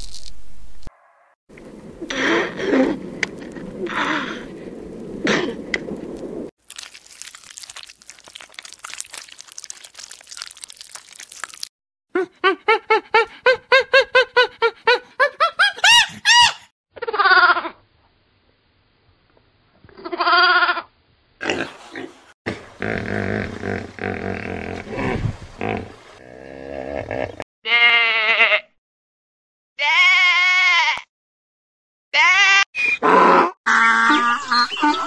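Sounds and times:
crackling noise: 0:00.0 - 0:11.7.

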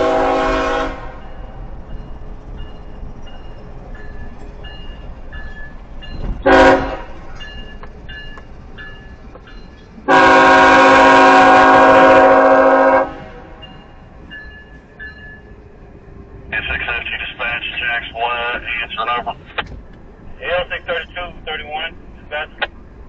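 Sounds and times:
locomotive air horn blasts: 0:00.0 - 0:01.3, 0:06.4 - 0:07.2, 0:10.1 - 0:13.7.

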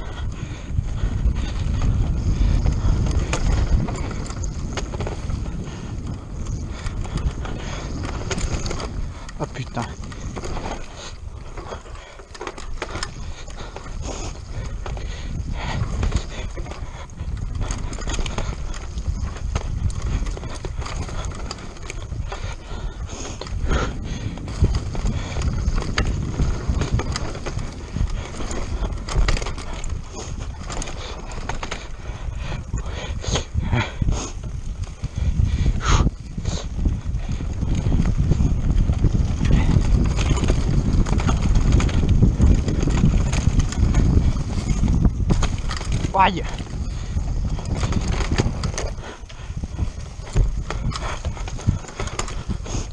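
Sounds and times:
bike chain and frame rattling: 0:00.0 - 0:52.9
tyres rumbling over dirt: 0:36.8 - 0:52.5.

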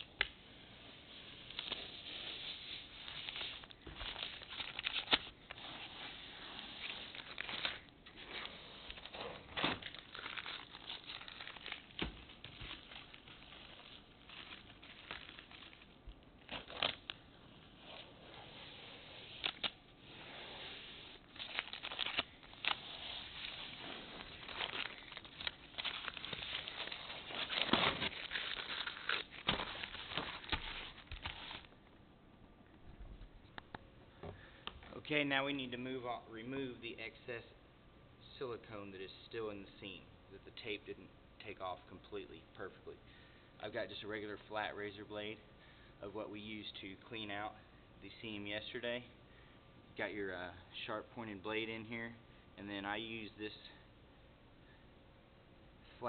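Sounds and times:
masking tape peeling and crinkling: 0:00.0 - 0:31.8.

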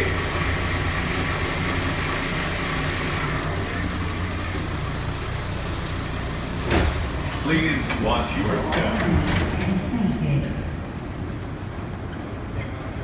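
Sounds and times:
train low rumble: 0:00.0 - 0:13.0.

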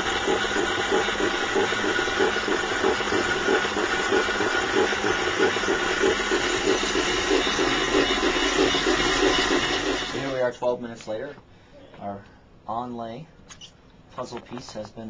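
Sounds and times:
dental milling unit grinding: 0:00.0 - 0:10.4.

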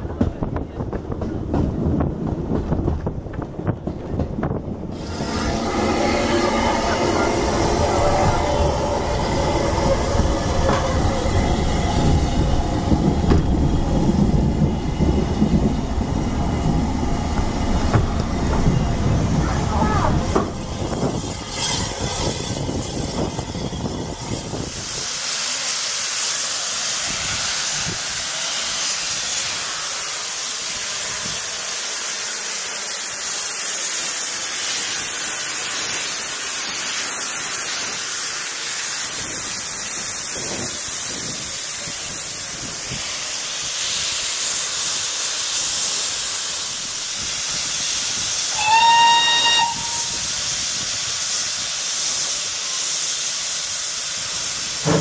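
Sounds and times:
low rumble: 0:01.9 - 0:24.8
steam locomotive hissing: 0:04.4 - 0:55.0
steam whistle: 0:48.5 - 0:50.4.

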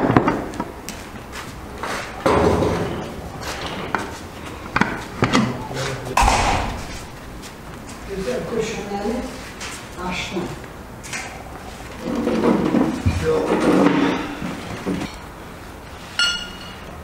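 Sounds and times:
indistinct voices: 0:05.6 - 0:07.8.

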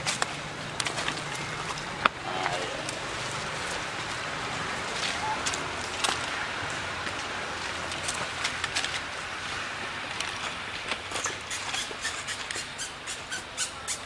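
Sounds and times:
outdoor background noise: 0:00.0 - 0:14.0
light clicks and crackles: 0:10.0 - 0:11.8.

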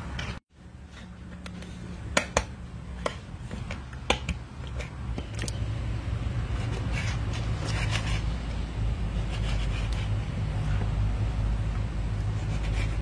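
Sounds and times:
steady low rumble: 0:04.4 - 0:13.0.

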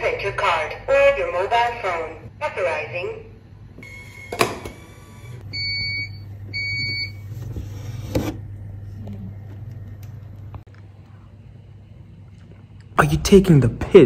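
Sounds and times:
vending machine beeping: 0:03.8 - 0:08.0
low steady hum: 0:05.4 - 0:14.0.

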